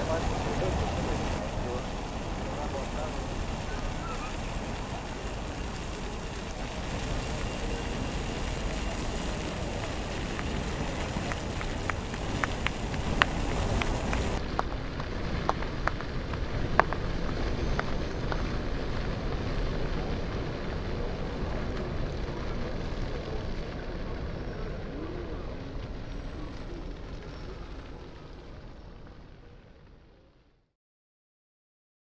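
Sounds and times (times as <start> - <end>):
traffic hum: 0.0 - 23.4
outdoor bustle: 0.0 - 30.3.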